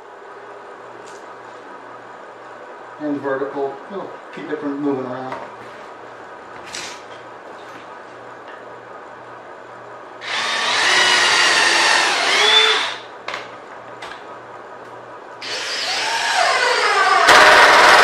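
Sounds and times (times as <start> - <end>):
cordless drill drilling into wood: 10.2 - 13.0, 15.4 - 18.0.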